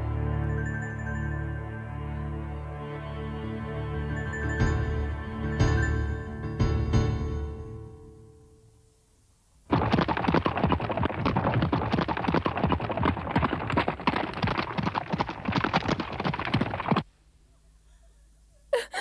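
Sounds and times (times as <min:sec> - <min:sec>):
soft music: 0:00.0 - 0:09.0
horse hooves galloping: 0:09.7 - 0:17.1.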